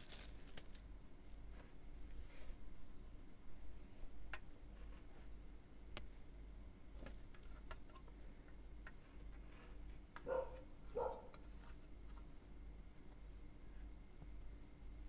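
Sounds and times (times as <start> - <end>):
handling noise with small clicks: 7.0 - 12.5.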